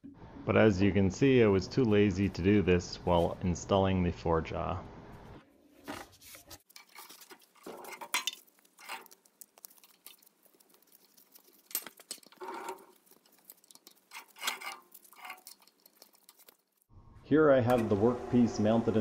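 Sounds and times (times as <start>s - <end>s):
work glove rustling: 5.8s - 16.9s
metal clinks and scrapes: 6.5s - 16.9s.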